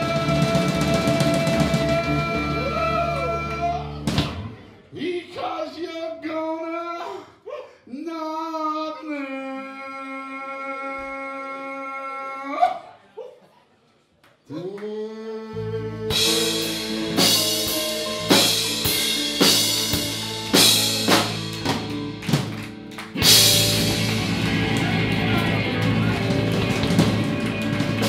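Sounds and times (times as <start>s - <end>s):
rock band playing live: 0.0s - 4.8s, 15.8s - 28.0s.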